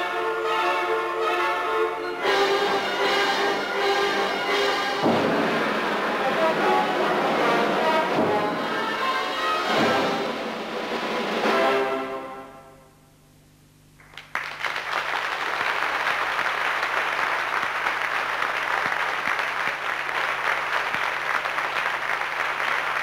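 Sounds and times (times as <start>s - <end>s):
audience applause: 14.0s - 23.0s.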